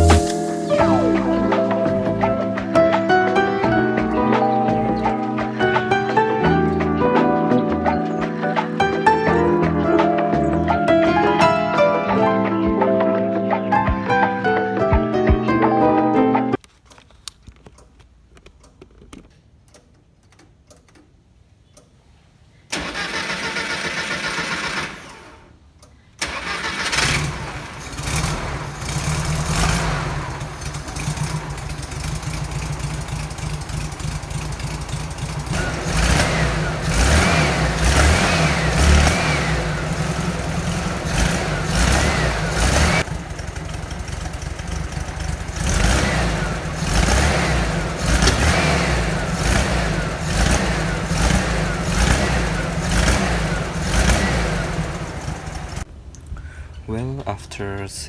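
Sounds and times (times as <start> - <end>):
engine cranking: 22.7 - 55.9
engine backfiring: 26.2 - 55.9
engine running unevenly: 27.5 - 55.8.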